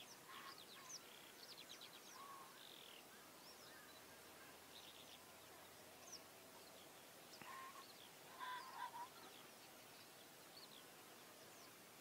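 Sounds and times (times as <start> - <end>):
short bird calls: 7.4 - 9.4.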